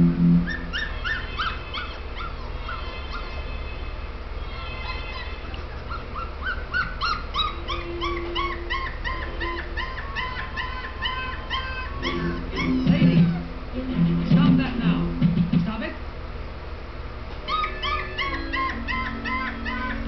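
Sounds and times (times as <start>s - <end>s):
steady low hum: 0.0s - 20.0s
puppy whimpering and crying: 0.4s - 13.6s, 17.4s - 20.0s.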